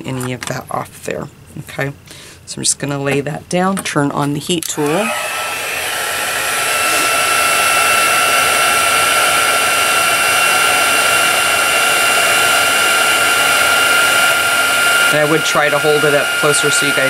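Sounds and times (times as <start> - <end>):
heat tool fan whining: 4.3 - 17.0.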